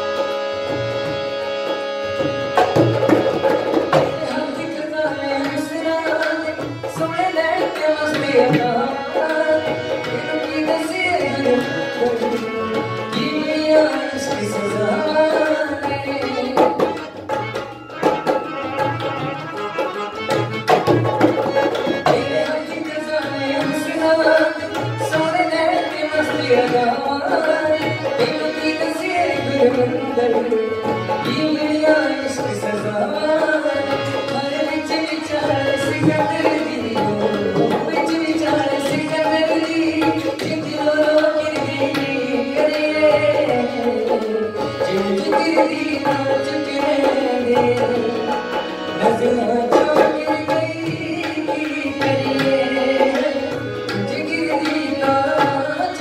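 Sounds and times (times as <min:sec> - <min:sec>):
harmonium chords: 0:00.0 - 0:56.0
tabla and dholak drums: 0:00.0 - 0:56.0
man singing: 0:03.9 - 0:17.4, 0:21.0 - 0:56.0.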